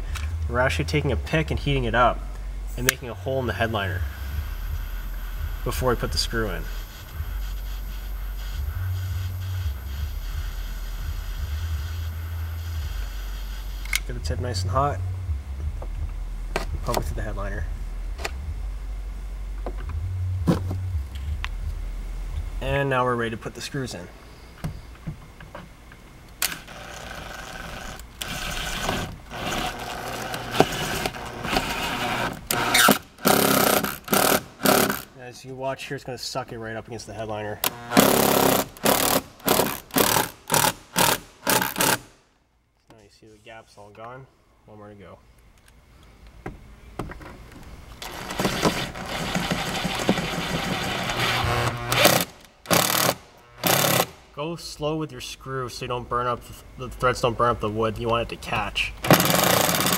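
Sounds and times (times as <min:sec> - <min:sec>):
cordless drill driving a screw: 0:26.4 - 0:35.1, 0:37.6 - 0:42.1, 0:48.0 - 0:54.2, 0:59.0 - 0:59.9.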